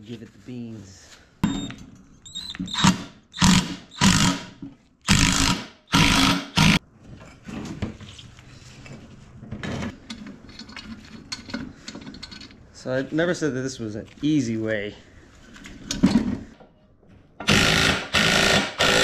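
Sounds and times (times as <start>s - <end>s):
tools clicking and rustling: 9.8s - 12.7s.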